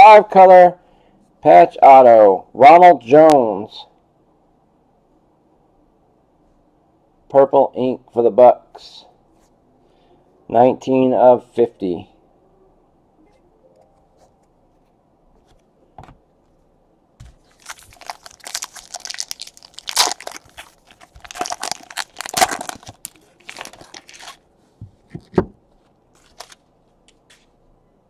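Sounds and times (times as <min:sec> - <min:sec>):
foil pack tearing and crinkling: 0:17.4 - 0:24.4.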